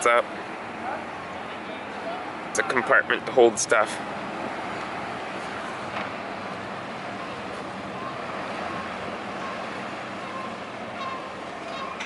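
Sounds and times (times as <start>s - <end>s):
boat engines running: 0.0s - 12.0s.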